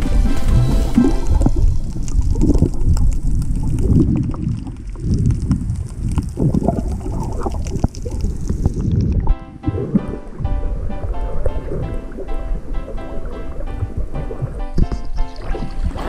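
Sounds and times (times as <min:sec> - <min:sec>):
background music: 0:00.0 - 0:01.7, 0:09.3 - 0:16.0
muffled underwater rumbling: 0:00.0 - 0:16.0
water sloshing: 0:00.0 - 0:16.0.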